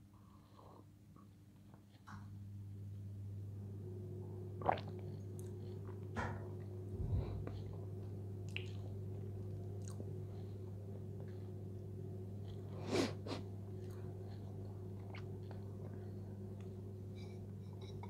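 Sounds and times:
steady low hum: 0.0s - 18.0s
person chewing food: 13.7s - 16.8s.

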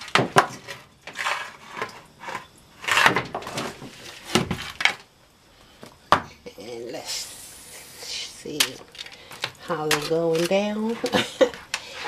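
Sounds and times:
crinkly foil rustling: 8.6s - 12.0s.

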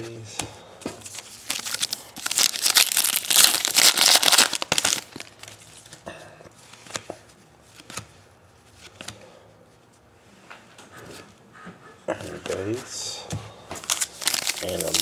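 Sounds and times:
cards clicking and rustling: 0.4s - 6.0s, 6.7s - 8.2s, 13.8s - 15.0s
foil wrapper crinkling: 1.1s - 5.6s, 13.8s - 15.0s.

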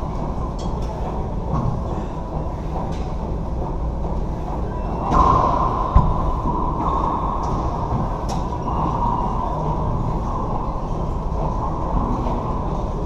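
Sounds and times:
steady hum: 0.0s - 13.0s
racquet hitting ball echoing: 5.0s - 9.5s.

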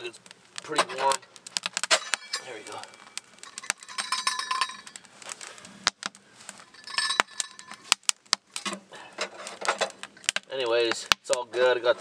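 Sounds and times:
metal lid clinking: 1.9s - 2.6s, 3.4s - 5.0s.

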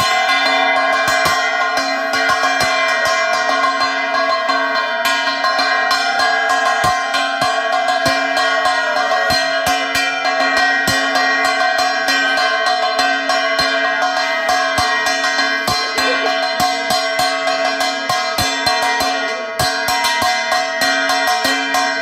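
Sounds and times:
metal bells ringing rapidly: 0.0s - 22.0s.

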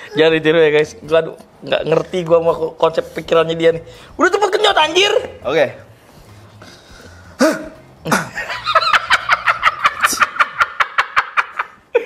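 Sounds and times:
man laughing loudly: 8.1s - 12.0s.

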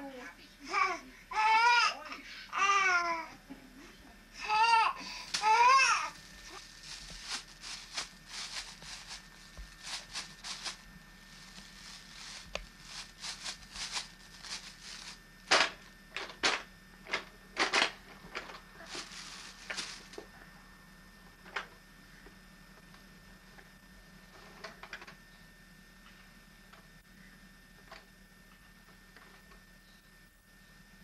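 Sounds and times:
paper bag crinkling: 5.1s - 16.4s, 17.6s - 20.3s.

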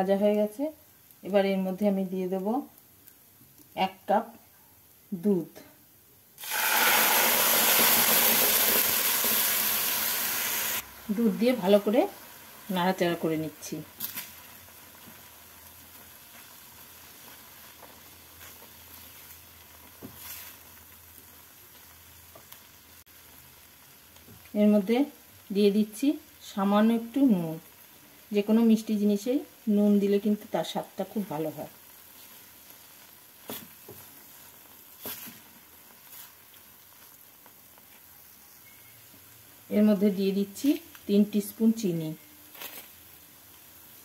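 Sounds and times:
faint sizzle in a frying pan: 0.0s - 44.0s
spatula scraping a frying pan: 20.0s - 20.7s, 33.4s - 36.5s.

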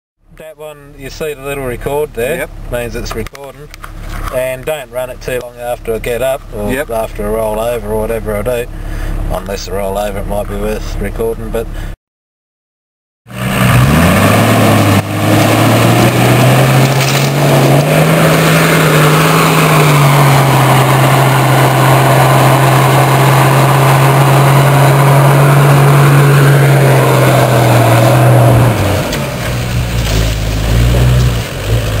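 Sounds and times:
engine revving hard: 13.3s - 32.0s.

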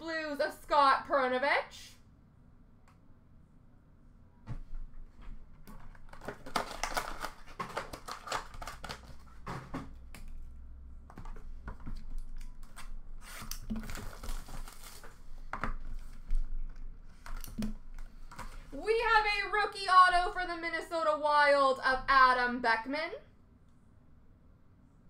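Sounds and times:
wrapper and cardboard rustling: 5.6s - 9.7s, 11.8s - 18.7s.

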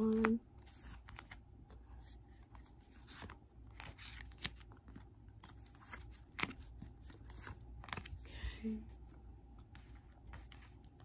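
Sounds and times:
cards clicking and scraping: 0.0s - 8.3s.

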